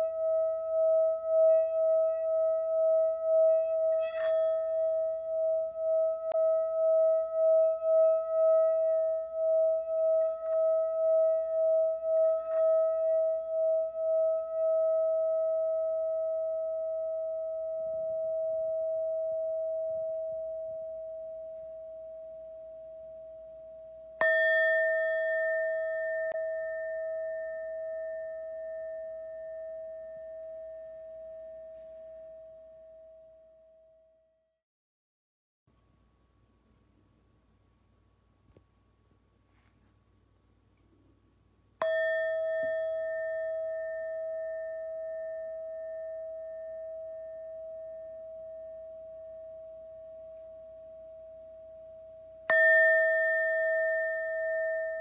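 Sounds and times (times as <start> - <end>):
singing bowl struck: 0.0 - 23.3, 24.2 - 32.4, 41.8 - 51.6, 52.4 - 55.0
singing bowl ringing: 0.0 - 34.0, 41.8 - 55.0.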